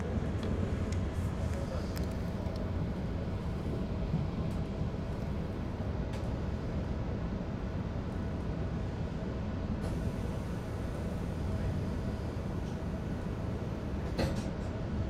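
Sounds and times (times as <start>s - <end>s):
train rumble inside cabin: 0.0s - 15.0s.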